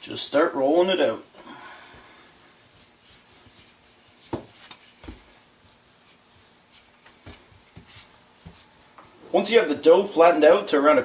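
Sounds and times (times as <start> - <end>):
rolling pin rolling dough: 1.9 - 10.0.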